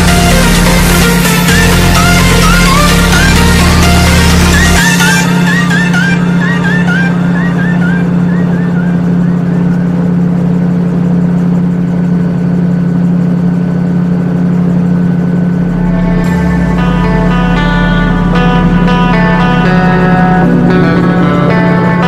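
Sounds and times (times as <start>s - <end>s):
music: 0.0s - 9.8s, 15.4s - 22.0s
propeller aircraft engine droning: 0.0s - 22.0s.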